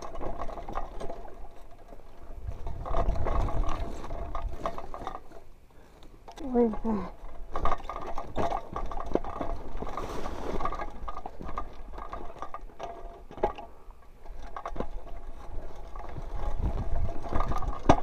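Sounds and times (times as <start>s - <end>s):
bike rattling over bumps: 0.0s - 18.0s
wind rumble on microphone: 2.2s - 5.1s, 15.2s - 18.0s.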